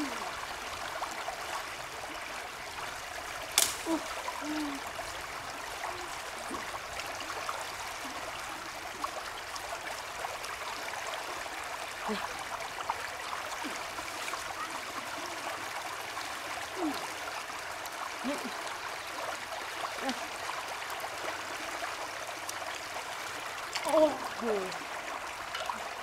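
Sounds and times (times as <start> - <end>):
stream flowing over stones: 0.0 - 26.0.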